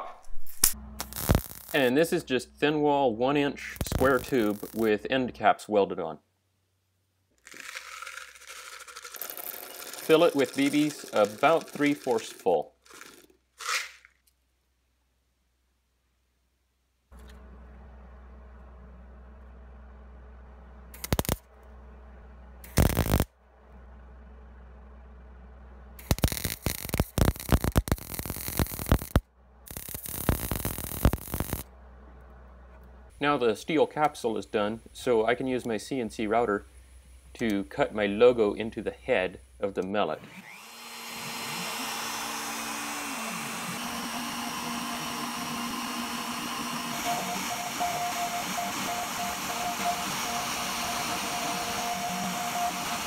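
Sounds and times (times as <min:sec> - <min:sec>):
welder arc crackling and sputtering: 0:00.3 - 0:02.2, 0:03.6 - 0:05.0, 0:07.4 - 0:14.0, 0:20.9 - 0:21.5, 0:22.6 - 0:23.3, 0:26.0 - 0:31.7
lower machine whine: 0:00.6 - 0:04.9, 0:17.2 - 0:33.2, 0:40.3 - 0:53.0
router spindle motor whine: 0:03.8 - 0:04.9, 0:40.2 - 0:53.0.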